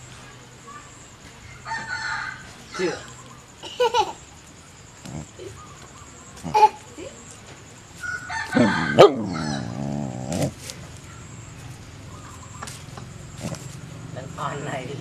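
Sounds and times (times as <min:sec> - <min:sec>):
rooster crowing: 0:01.5 - 0:03.1, 0:08.0 - 0:10.0.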